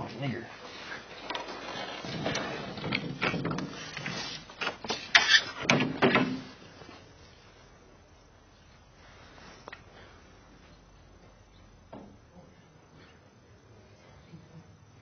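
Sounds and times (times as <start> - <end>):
knocks and clunks: 4.8 - 6.6.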